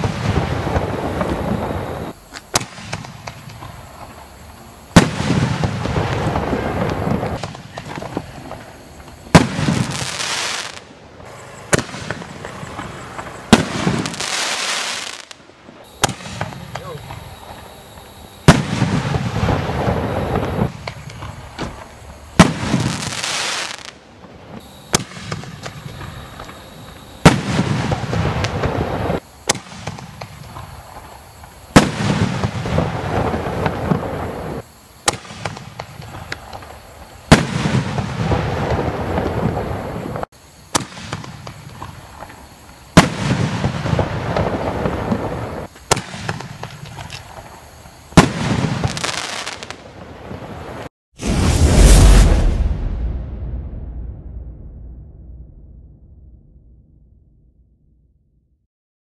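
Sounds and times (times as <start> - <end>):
crackling rumbling echo: 49.7 - 58.4
mortar launch thump: 51.2 - 57.1.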